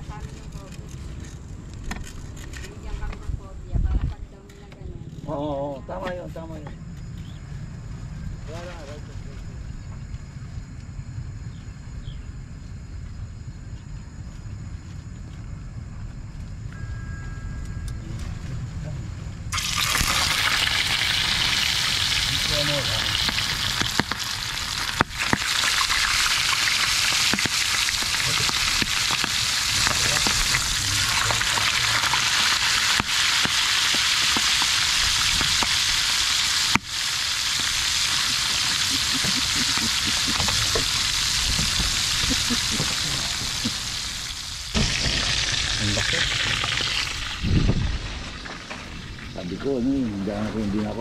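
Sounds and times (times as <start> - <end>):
fish sizzling in hot oil: 19.5 - 49.4.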